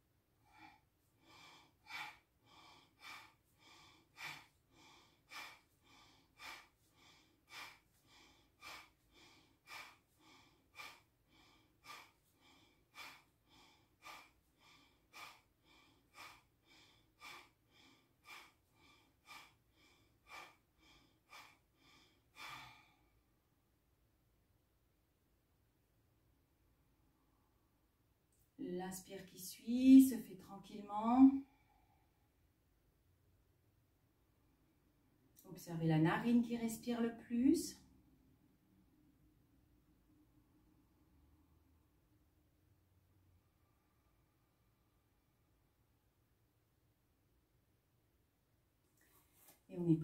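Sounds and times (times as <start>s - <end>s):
woman breathing forcefully through nose: 0.4s - 23.2s.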